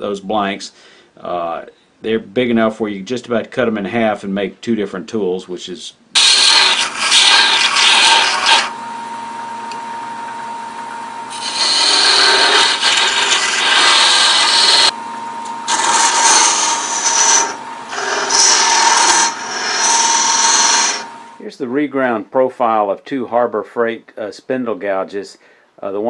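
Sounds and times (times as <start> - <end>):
scraper cutting spinning wood: 6.2 - 8.8, 11.3 - 15.0, 15.7 - 21.3
lathe humming: 6.2 - 21.4.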